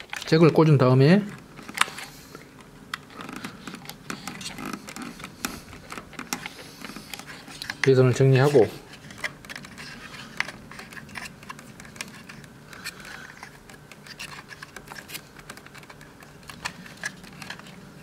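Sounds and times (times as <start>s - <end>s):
plastic connectors clicking and rattling: 9.0s - 17.8s.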